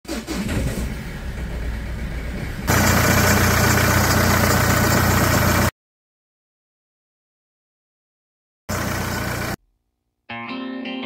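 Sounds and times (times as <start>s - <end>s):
abnormal engine belt noise: 0.1s - 5.7s, 8.7s - 9.6s
diesel engine idling: 0.1s - 5.7s, 8.7s - 9.6s.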